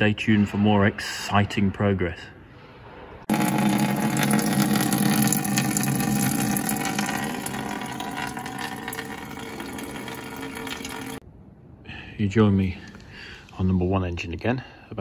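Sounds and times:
liquid pouring into a container: 0:03.3 - 0:11.2.

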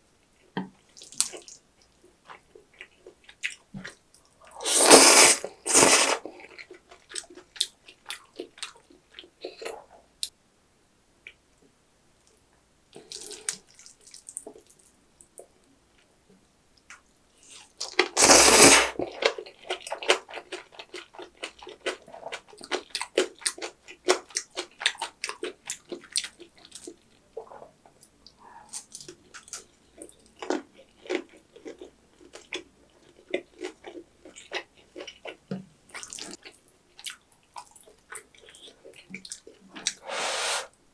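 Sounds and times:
person slurping noodles: 0:04.6 - 0:06.2, 0:18.2 - 0:19.0, 0:40.0 - 0:40.7
wet chewing and smacking: 0:06.2 - 0:09.9, 0:19.0 - 0:40.0.

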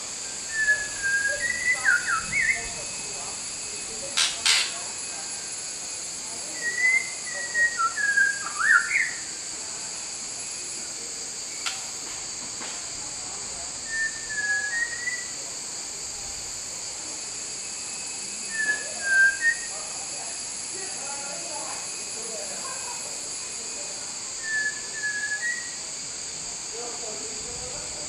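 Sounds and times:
steady high hiss: 0:00.0 - 0:28.0
bird singing whistled notes: 0:00.4 - 0:03.1, 0:06.5 - 0:09.3, 0:13.8 - 0:15.4, 0:17.8 - 0:19.8, 0:24.4 - 0:25.8.

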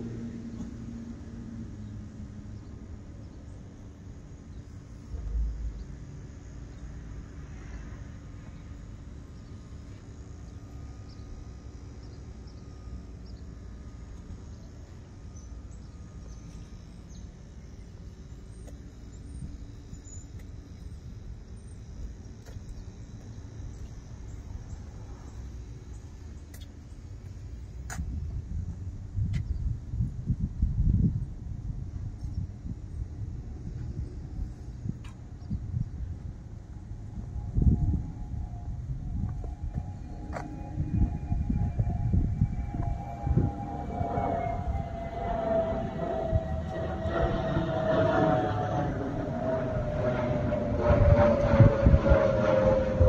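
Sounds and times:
steady low rumble: 0:00.0 - 0:53.0.

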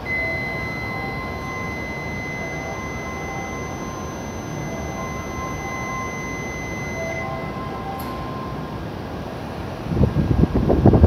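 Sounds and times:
high electronic beep: 0:00.0 - 0:08.7
chime melody: 0:00.0 - 0:08.8.

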